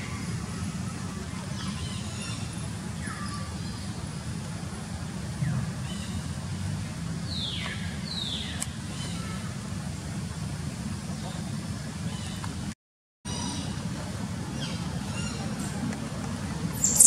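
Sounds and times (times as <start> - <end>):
baby monkey squealing: 16.8 - 17.0.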